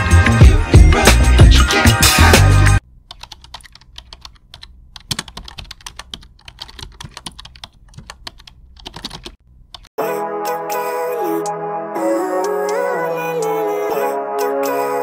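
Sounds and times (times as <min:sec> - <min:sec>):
music: 0:00.0 - 0:02.8, 0:10.0 - 0:15.0
computer keyboard typing: 0:03.1 - 0:09.9.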